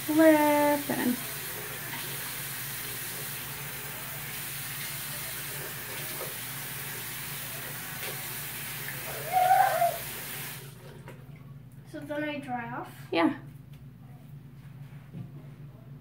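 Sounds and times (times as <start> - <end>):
faucet running: 0.0 - 11.4.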